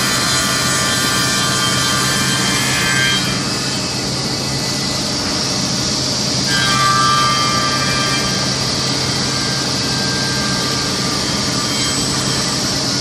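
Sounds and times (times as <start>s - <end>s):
saw cutting wood: 0.0s - 5.6s, 6.4s - 13.0s
saw blade whine: 0.0s - 13.0s.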